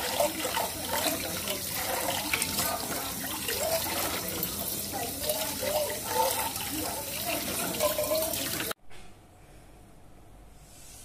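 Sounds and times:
tap water running into sink: 0.0s - 8.8s.

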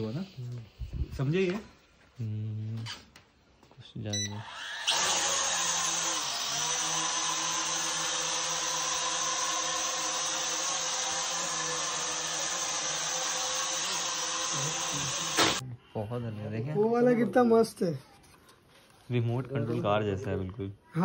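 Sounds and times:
toy drone propellers whirring: 4.4s - 15.6s.

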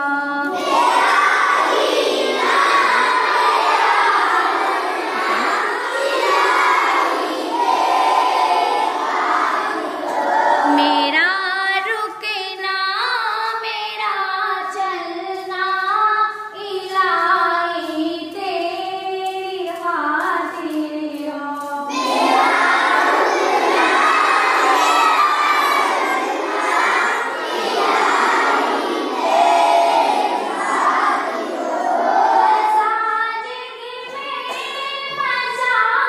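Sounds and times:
children singing a hymn in chorus: 0.0s - 11.0s, 21.6s - 36.0s.

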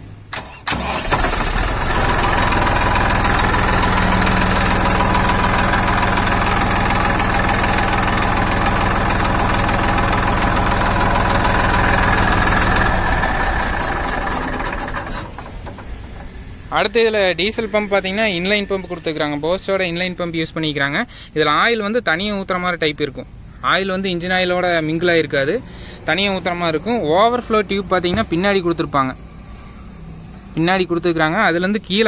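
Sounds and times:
diesel tractor engine starting: 0.0s - 20.2s, 23.4s - 30.6s
diesel engine idling with knock: 1.4s - 17.5s, 26.7s - 28.6s.

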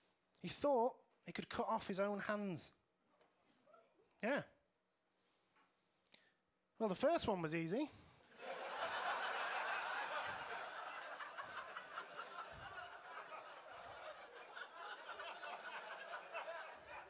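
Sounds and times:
audience laughing: 8.3s - 17.0s.

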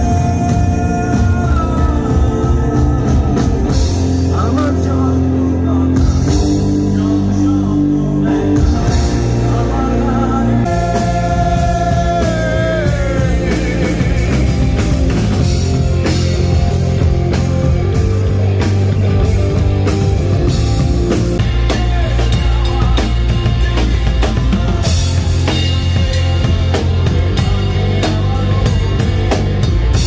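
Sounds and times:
drum kit beat: 0.0s - 5.0s, 5.9s - 7.3s, 8.4s - 10.0s, 10.7s - 30.0s
electric guitars playing chords: 0.0s - 30.0s
man singing: 0.0s - 30.0s.

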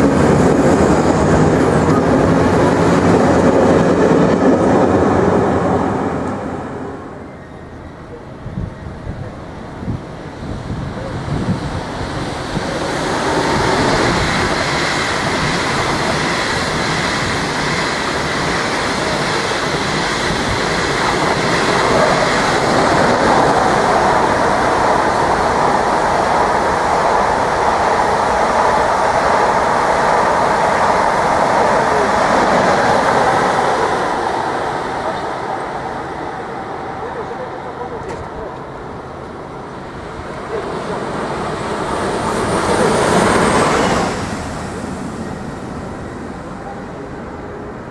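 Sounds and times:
high-speed train passing: 0.0s - 47.9s.

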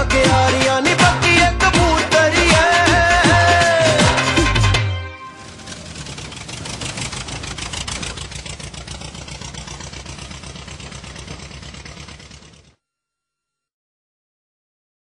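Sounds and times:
diesel tractor engine chugging: 5.3s - 12.7s.

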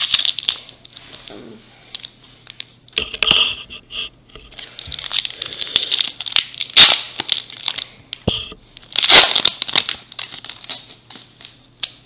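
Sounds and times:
plastic wrapper crinkling: 0.0s - 1.3s, 4.4s - 12.0s.

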